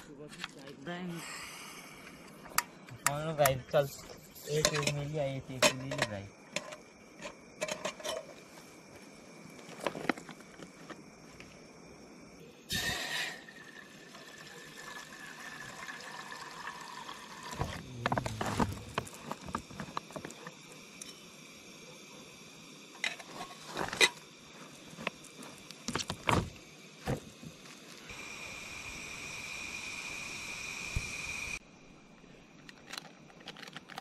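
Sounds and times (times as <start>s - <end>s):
water pouring into kettle: 12.7s - 17.9s
water bag clatter and clicks: 32.6s - 34.0s.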